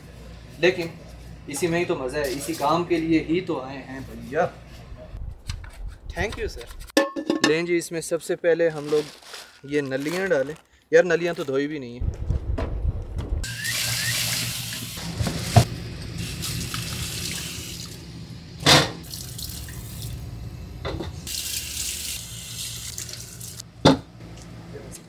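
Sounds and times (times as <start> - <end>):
tap water running into sink: 13.4 - 18.0, 21.3 - 23.6.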